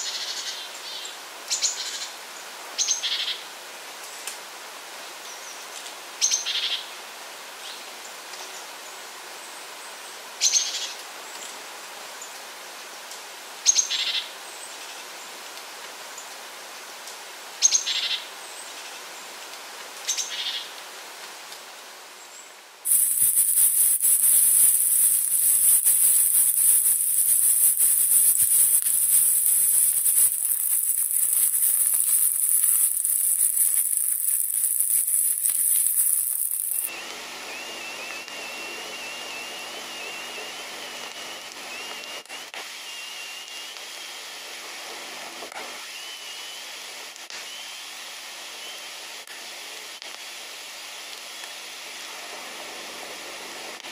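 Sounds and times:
mushrooms and onion sizzling in pan: 22.9s - 36.9s.

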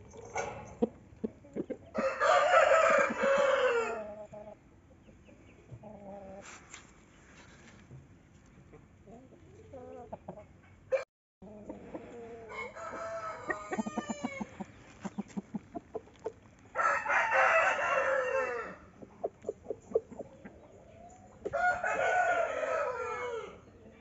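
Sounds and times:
chicken clucking: 0.0s - 6.6s, 8.5s - 10.8s, 11.4s - 17.2s, 17.9s - 24.0s
rooster crowing: 2.0s - 4.0s, 12.5s - 14.5s, 16.7s - 18.9s, 21.5s - 23.7s.

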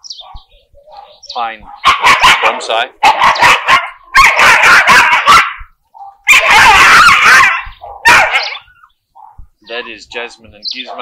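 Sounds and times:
dogs barking high-pitched: 0.0s - 11.0s.

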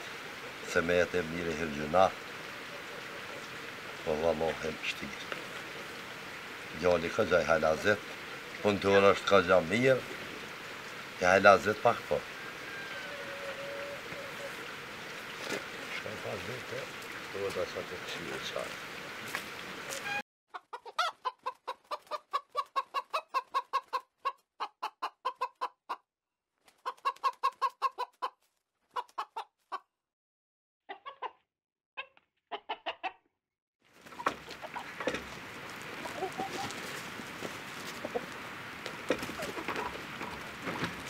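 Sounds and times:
chickens clucking: 11.8s - 14.7s, 20.5s - 26.0s, 26.8s - 29.9s, 30.9s - 31.4s, 32.0s - 33.2s, 34.0s - 41.0s.

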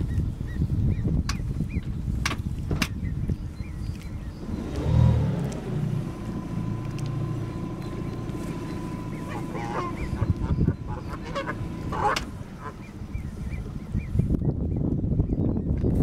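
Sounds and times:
boat engine humming: 1.4s - 14.5s
geese honking: 6.0s - 14.1s.

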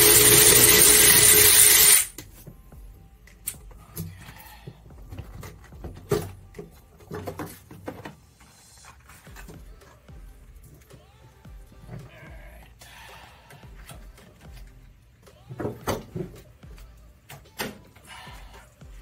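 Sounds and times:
power tool running: 0.0s - 2.1s.

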